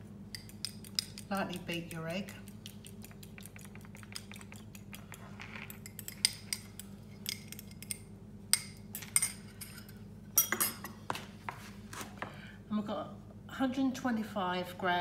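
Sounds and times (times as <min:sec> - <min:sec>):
fork beating egg in glass bowl: 0:00.3 - 0:08.0.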